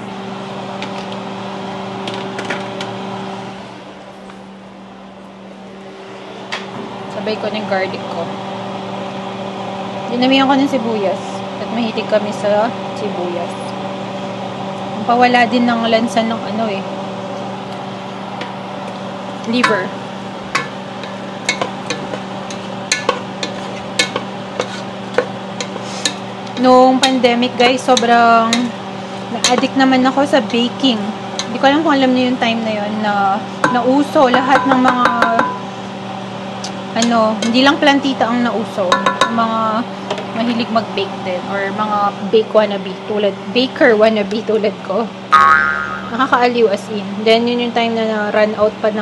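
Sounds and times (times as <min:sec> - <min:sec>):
steady electric hum: 0:00.0 - 0:49.0
onions sizzling in a pot: 0:19.4 - 0:32.8
spatula scraping a pot: 0:21.0 - 0:26.3.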